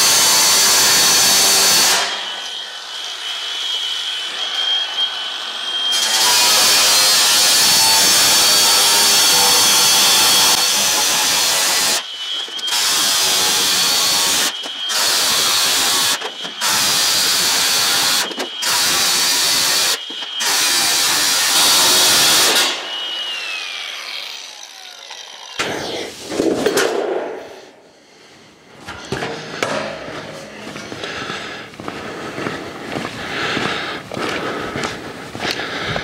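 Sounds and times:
high motor whine: 10.4s - 16.7s, 21.4s - 26.7s.

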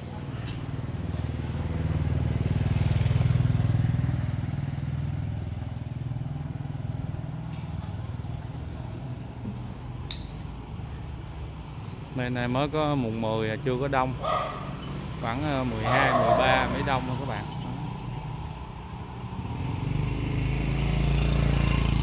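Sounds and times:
motorcycle engine running: 0.7s - 9.7s, 14.2s - 22.0s.

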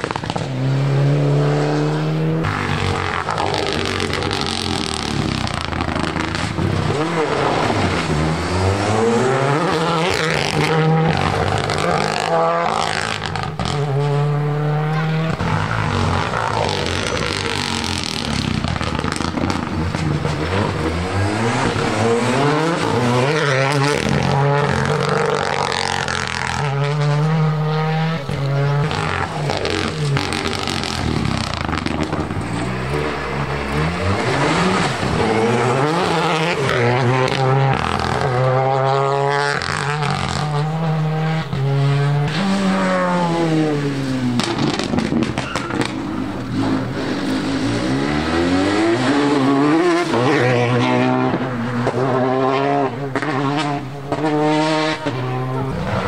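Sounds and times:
rally car engines revving: 0.0s - 56.0s
tyre squeal: 45.4s - 47.6s.

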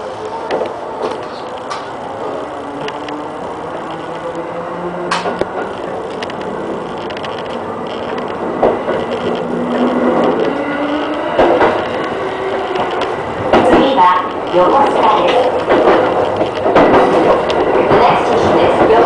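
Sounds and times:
train wheels rumbling on rail: 0.0s - 19.0s
wheels clacking over rail joints: 3.8s - 19.0s.

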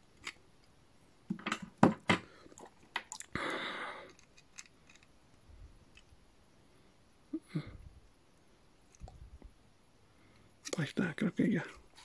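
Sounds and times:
plastic toy parts clicking and snapping: 0.2s - 0.4s, 4.1s - 5.1s.

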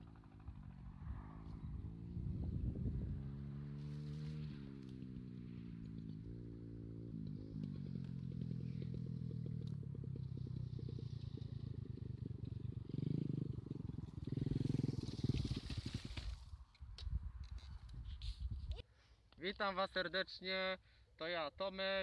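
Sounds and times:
small off-road vehicle engine: 0.0s - 16.8s.

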